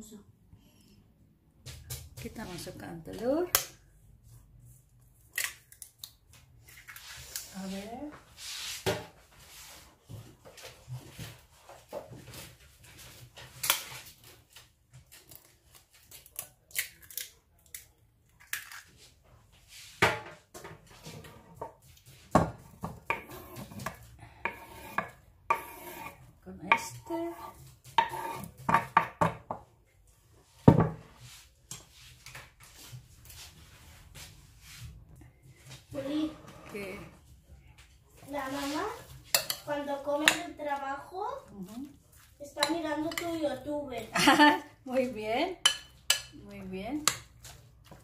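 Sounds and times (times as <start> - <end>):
knife and board knocking on glass bowl: 22.4 - 26.1, 26.7 - 29.6.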